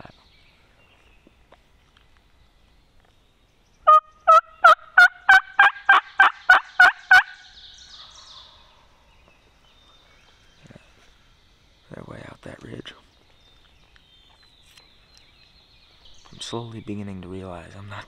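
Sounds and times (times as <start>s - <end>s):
turkey call notes: 3.8s - 8.6s.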